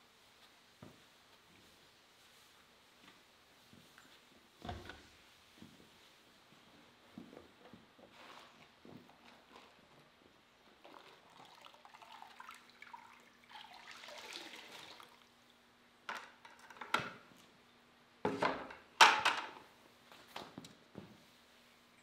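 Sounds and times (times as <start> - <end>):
mop swishing on concrete floor: 0.3 - 9.9
mop sloshing in bucket: 10.8 - 15.3.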